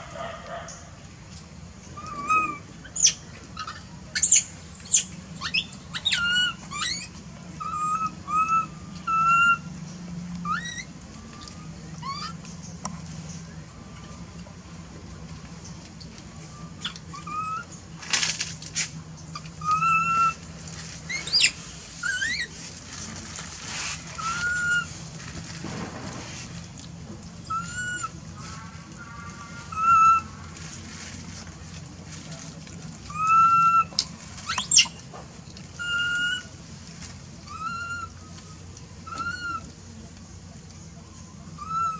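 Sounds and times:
monkey squeaks: 2.0s - 9.6s, 10.4s - 10.9s, 11.5s - 12.4s, 16.8s - 17.7s, 19.3s - 20.4s, 21.0s - 22.6s, 24.2s - 24.9s, 27.4s - 28.1s, 29.7s - 30.3s, 33.1s - 35.0s, 35.8s - 36.5s, 37.5s - 38.2s, 39.0s - 39.7s, 41.5s - 41.9s
monkeys whistle-like coo calls: 2.0s - 9.7s, 10.4s - 12.4s, 16.6s - 17.7s, 19.4s - 20.4s, 24.2s - 24.9s, 27.4s - 28.6s, 29.6s - 30.4s, 33.1s - 35.0s, 35.8s - 36.5s, 37.4s - 39.7s, 41.2s - 41.9s.

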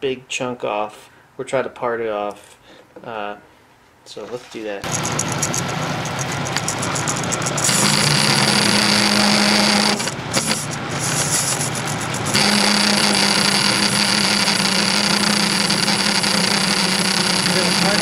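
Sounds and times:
lathe tool cutting metal: 4.8s - 18.0s
metal lathe humming: 4.8s - 18.0s.

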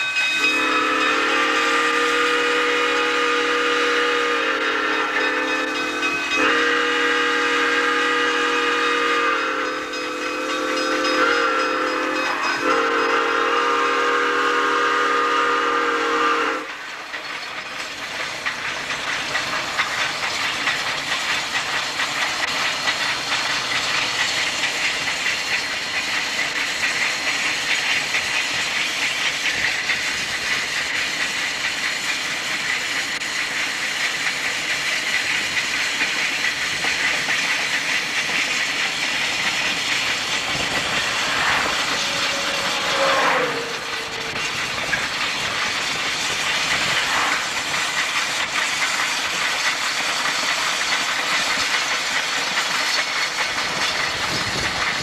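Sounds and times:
steam locomotive hiss and rumble: 0.0s - 55.0s
road and wind noise: 39.4s - 47.6s
falling sweep: 40.7s - 44.5s.

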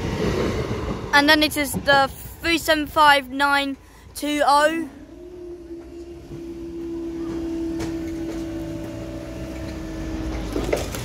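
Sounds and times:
barrier machinery humming: 4.4s - 11.0s.

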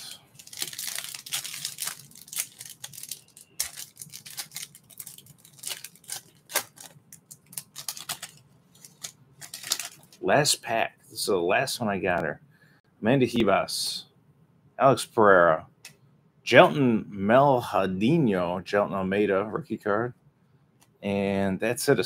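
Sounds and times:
foil wrapper tearing and crinkling: 0.3s - 10.2s.

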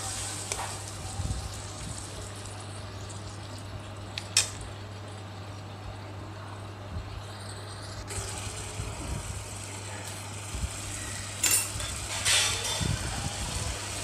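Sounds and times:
faint sizzle: 0.0s - 14.0s.

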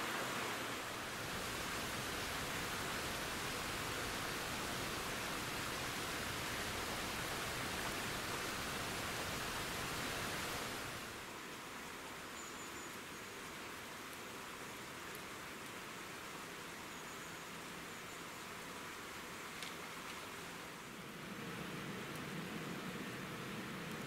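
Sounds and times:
steady outdoor hiss: 0.0s - 24.0s.

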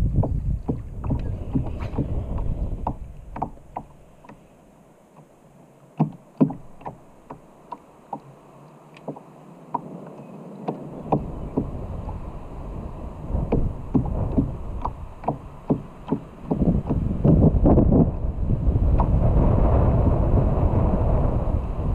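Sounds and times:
wind buffeting microphone: 0.0s - 4.3s, 9.8s - 21.9s
waves slapping against kayak hull: 0.0s - 21.9s.

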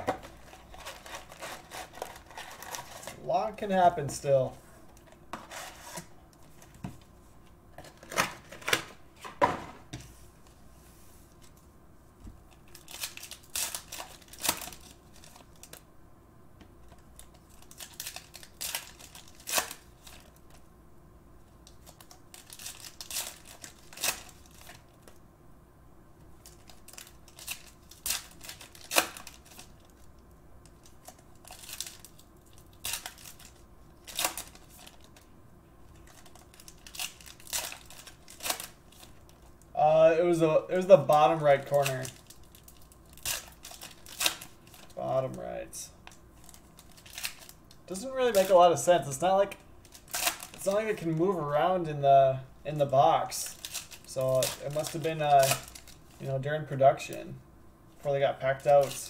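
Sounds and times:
foil wrappers tearing and crinkling: 0.0s - 3.2s, 12.6s - 15.8s, 16.9s - 20.6s, 21.7s - 25.2s, 26.4s - 30.1s, 30.7s - 35.2s, 36.0s - 39.5s, 40.2s - 51.4s, 52.8s - 56.5s, 58.5s - 59.0s.

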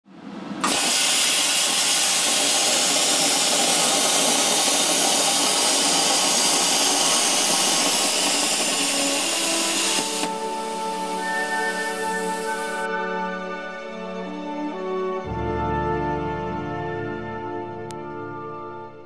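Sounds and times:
plasma cutter hissing: 0.6s - 12.9s.

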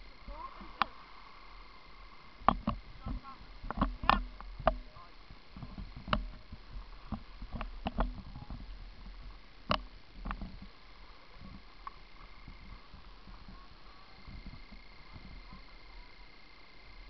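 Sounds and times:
skis and poles knocking: 2.4s - 15.8s.

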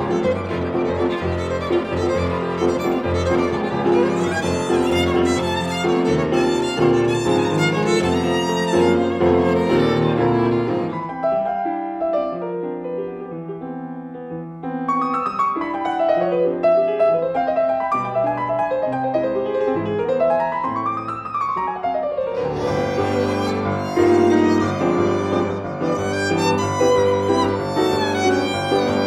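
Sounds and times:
violin: 0.0s - 11.6s, 22.1s - 29.0s
grand piano: 0.0s - 29.0s.

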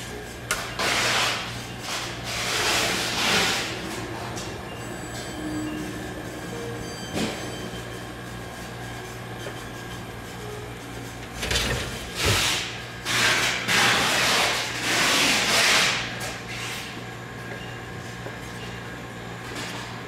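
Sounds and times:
steady low hum: 3.7s - 13.1s.

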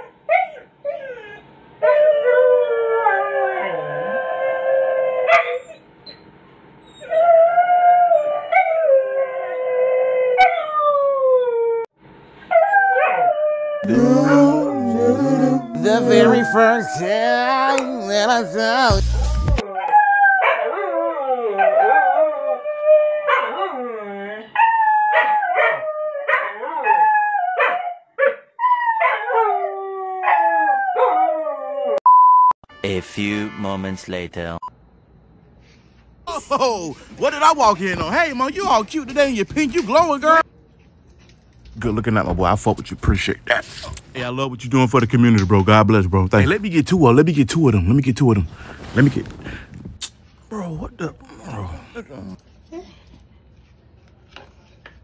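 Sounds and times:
dog howling: 0.3s - 5.8s, 12.5s - 28.0s, 28.6s - 32.0s
dog yelping: 5.3s - 6.2s.

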